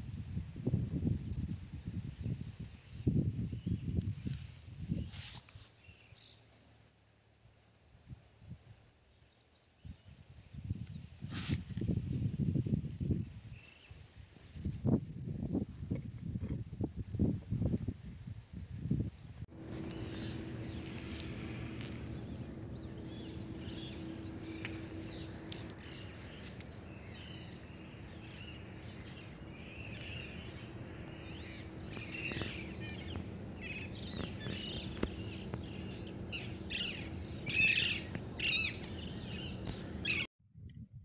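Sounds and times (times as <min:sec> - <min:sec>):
birds chirping: 0:19.5 - 0:40.3
steady low hum: 0:19.5 - 0:40.3.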